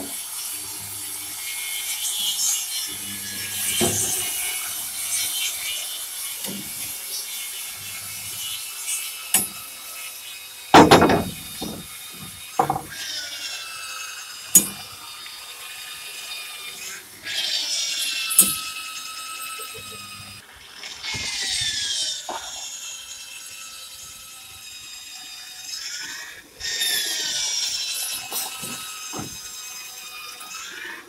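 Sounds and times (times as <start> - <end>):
electric drill boring into wood: 0.0 - 31.0
hammer knocking on wood: 10.8 - 12.9.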